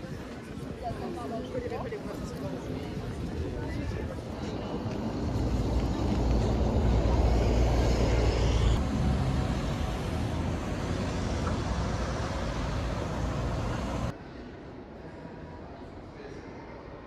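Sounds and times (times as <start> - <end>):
road traffic rumble: 2.8 - 14.2.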